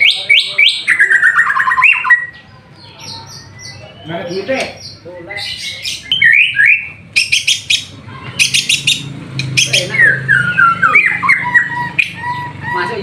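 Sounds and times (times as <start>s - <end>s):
bird singing whistled phrases: 0.0s - 2.4s, 5.9s - 13.0s.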